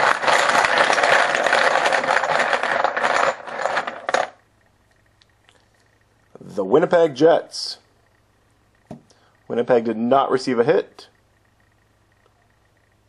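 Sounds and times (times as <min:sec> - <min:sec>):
poker chips clattering: 0:00.0 - 0:04.4.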